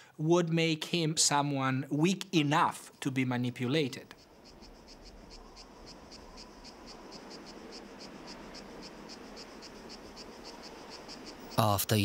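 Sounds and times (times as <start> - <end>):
cricket chirping: 4.1 - 12.0.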